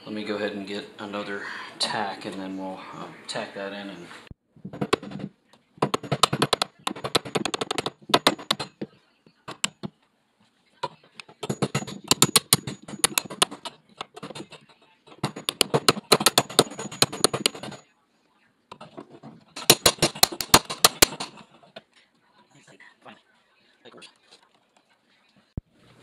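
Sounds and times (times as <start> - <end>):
hammer tapping staple into wood: 11.4 - 14.5, 15.2 - 17.8, 19.6 - 21.4.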